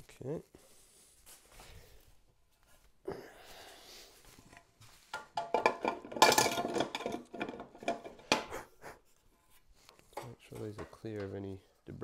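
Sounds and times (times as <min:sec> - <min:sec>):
metal clattering and clinking: 0:05.2 - 0:08.5.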